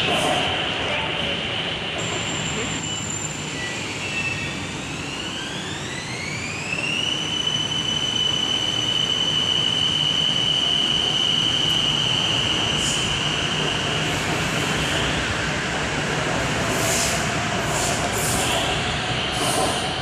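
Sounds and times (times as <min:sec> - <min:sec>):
rumble of train cars: 0:00.0 - 0:20.0
electric train motor whine: 0:03.6 - 0:09.7.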